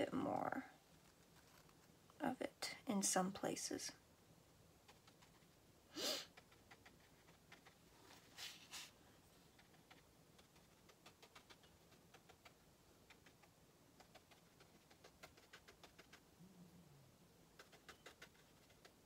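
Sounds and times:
brush swishes: 0:08.0 - 0:09.0.

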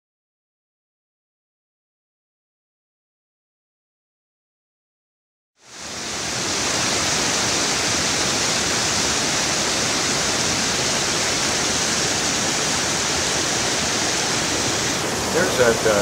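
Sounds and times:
creek water rushing over rocks: 0:05.6 - 0:16.0.

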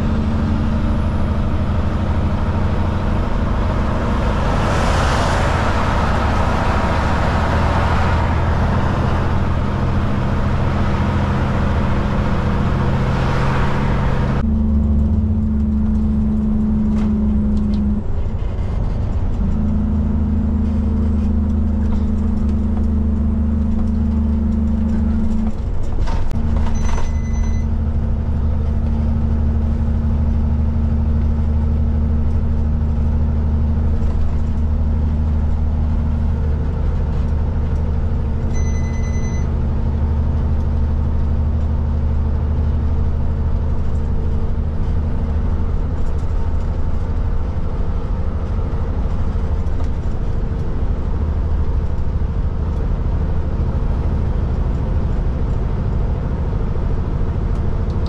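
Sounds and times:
diesel engine droning: 0:00.0 - 0:58.0
short electronic beeps: 0:26.7 - 0:27.7, 0:38.5 - 0:39.6.

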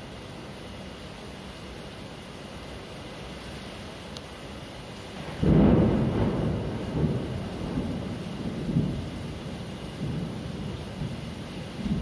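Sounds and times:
steady rain: 0:00.0 - 0:12.0
thunder clap and rumble: 0:05.2 - 0:12.0.

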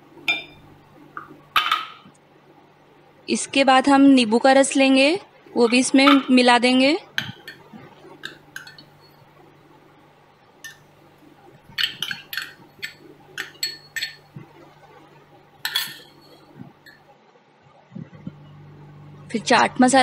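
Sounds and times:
glass bowls clinking: 0:00.2 - 0:02.1, 0:07.2 - 0:09.3, 0:10.6 - 0:10.9, 0:11.6 - 0:14.4, 0:15.6 - 0:17.0.

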